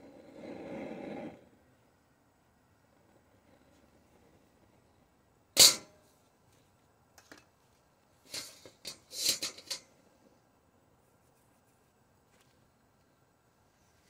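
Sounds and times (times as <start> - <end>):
wok clanking on metal grate: 5.6 - 6.0
wok knocking and scraping on grate: 5.6 - 6.0.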